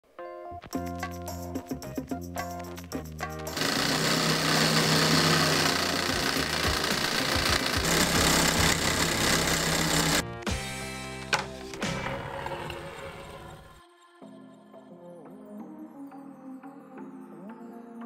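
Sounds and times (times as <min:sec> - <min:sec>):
electric motor: 0:03.4 - 0:10.2, 0:11.9 - 0:13.8
model engine running steadily: 0:03.5 - 0:10.2.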